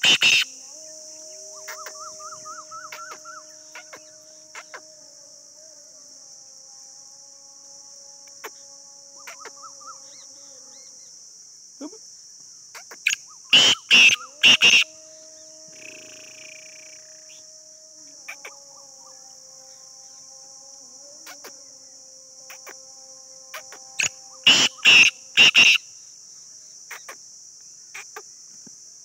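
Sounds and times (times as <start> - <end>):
francolin calling: 0.0 - 4.9, 8.2 - 11.1, 12.7 - 20.2, 23.5 - 25.8, 26.9 - 27.2
high insect drone: 0.0 - 29.0.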